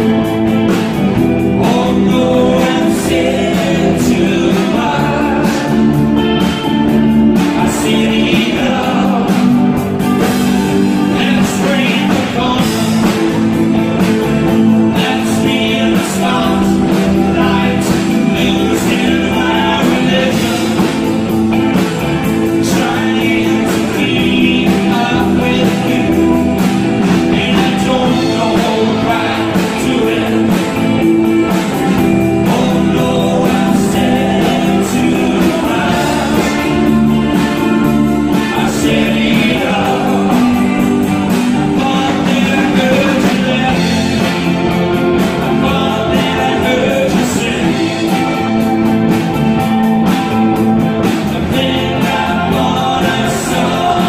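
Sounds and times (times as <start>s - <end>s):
man singing: 0.0s - 49.2s, 51.0s - 54.0s
bass guitar: 0.0s - 54.0s
drum kit and cymbals: 0.0s - 54.0s
electric guitars: 0.0s - 54.0s.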